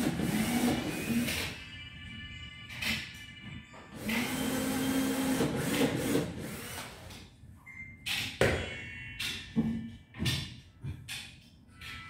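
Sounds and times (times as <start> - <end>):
drill-driver driving a screw: 0.0 - 1.5, 4.0 - 6.9.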